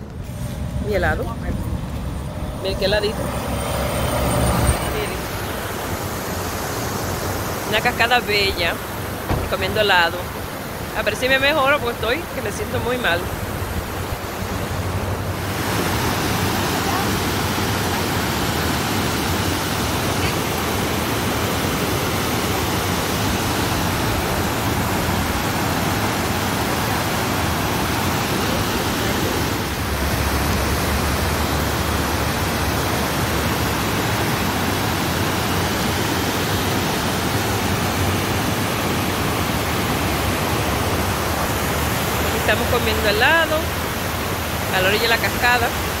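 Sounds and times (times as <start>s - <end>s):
whitewater rushing over rocks: 2.4s - 46.0s.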